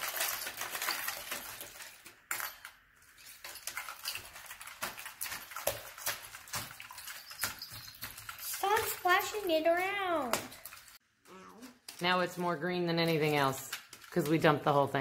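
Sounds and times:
foil crinkling: 0.0s - 2.0s.

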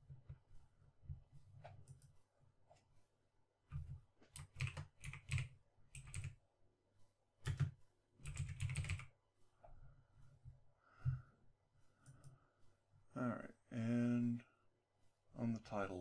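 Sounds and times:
typing on keyboard: 4.3s - 6.4s, 7.4s - 9.1s.

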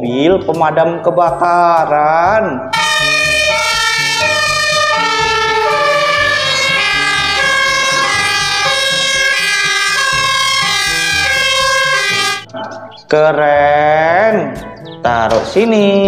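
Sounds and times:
toy electronic siren: 2.8s - 12.7s.

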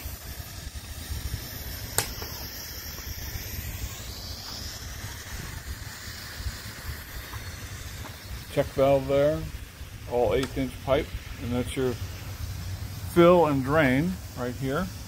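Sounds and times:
wind buffeting microphone: 0.0s - 13.5s
faint hiss: 0.0s - 15.0s
sharp click: 1.9s - 2.4s.

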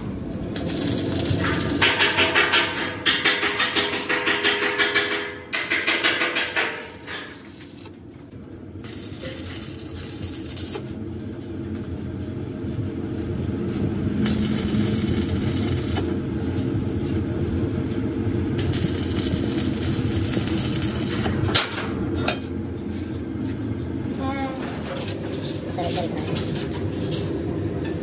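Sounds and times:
arc welding crackle: 0.4s - 3.7s, 6.0s - 8.0s, 8.8s - 11.9s, 13.5s - 21.8s
low machine hum: 6.6s - 28.0s.

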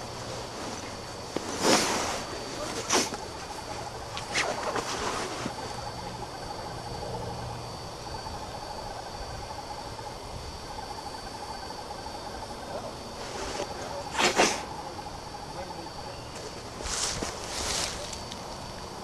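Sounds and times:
rustling: 0.0s - 5.9s, 13.1s - 14.7s, 16.3s - 18.4s
insects chirring: 0.0s - 19.0s.

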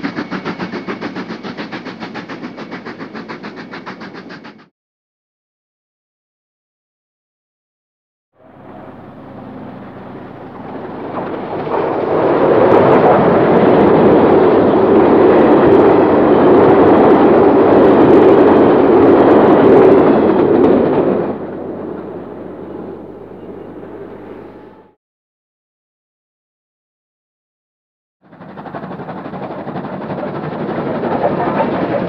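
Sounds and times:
steam locomotive passing at speed: 0.0s - 4.7s, 8.4s - 25.0s, 28.2s - 32.0s.

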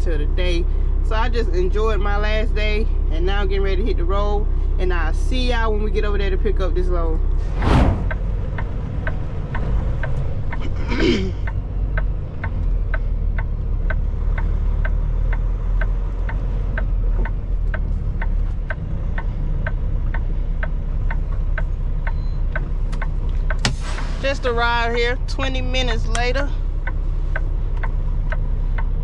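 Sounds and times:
diesel engine running: 0.0s - 29.0s
falling swish: 7.4s - 8.2s
short whoosh: 7.4s - 8.3s
turn signal clicking: 8.1s - 29.0s.

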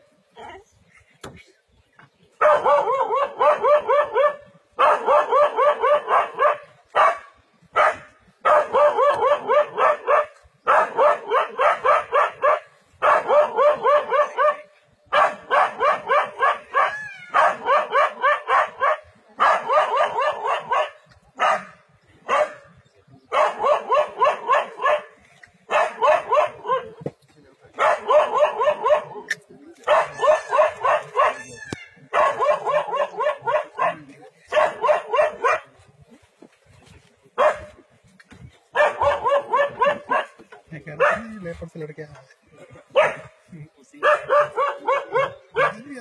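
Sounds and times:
dog barking rapidly: 2.4s - 22.7s, 23.3s - 27.0s, 27.8s - 35.8s, 37.4s - 37.8s, 38.7s - 41.5s, 42.9s - 43.3s, 44.0s - 45.9s.

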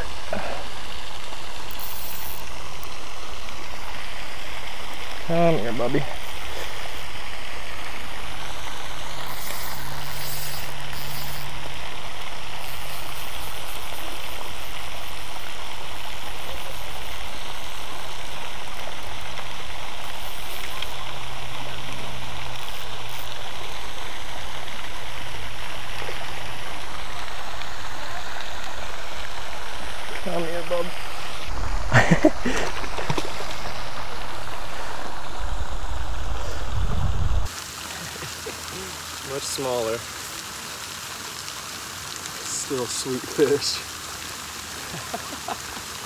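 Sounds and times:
fountain water rushing: 0.0s - 46.0s
low hum: 6.1s - 37.5s.

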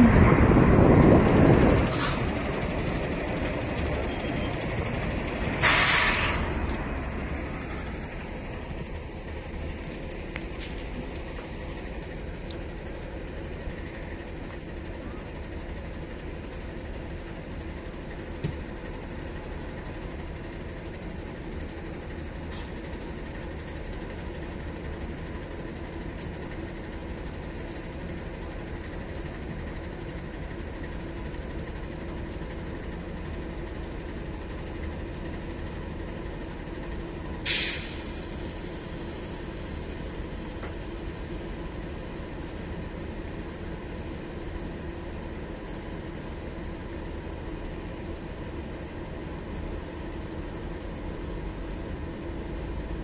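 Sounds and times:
bus engine and road noise: 0.0s - 53.0s
air brake hiss: 5.6s - 6.6s, 37.4s - 39.4s.

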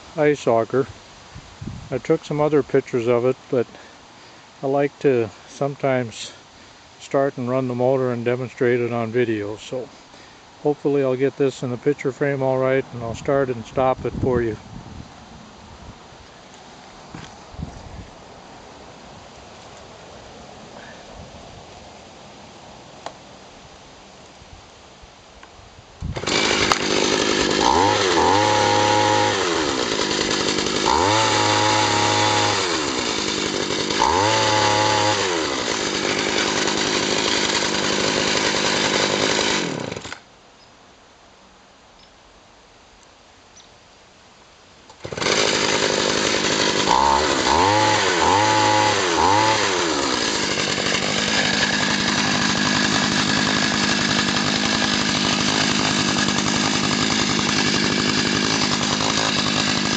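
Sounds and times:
ice auger engine revving: 26.1s - 40.2s, 45.0s - 59.9s.

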